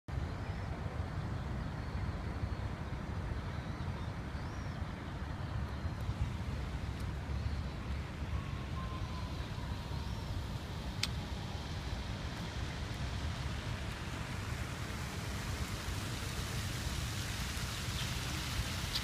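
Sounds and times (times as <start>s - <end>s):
city traffic rumble: 0.1s - 19.0s
faint bird chirps: 7.3s - 10.5s.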